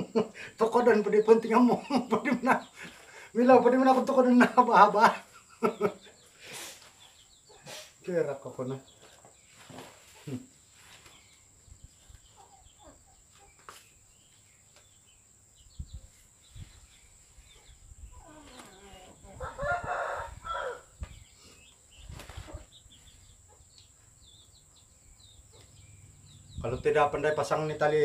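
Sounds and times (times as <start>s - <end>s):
rooster crowing: 19.4s - 21.0s.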